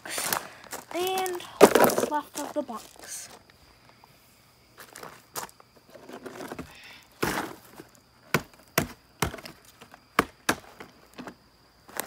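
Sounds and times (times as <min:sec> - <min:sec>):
cardboard knocks on gravel: 0:01.6 - 0:02.1, 0:06.1 - 0:11.4
cardboard scraping rustle: 0:05.9 - 0:07.9.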